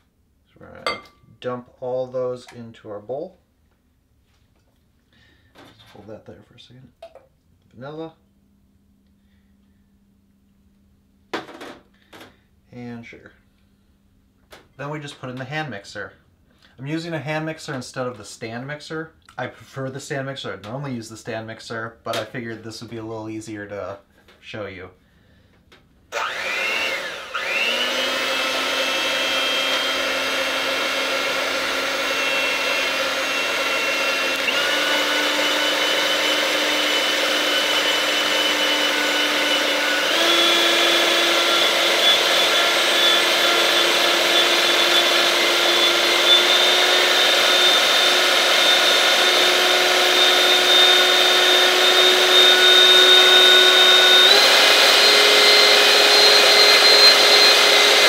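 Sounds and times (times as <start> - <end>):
electric hand mixer whining: 26.1 - 58.0.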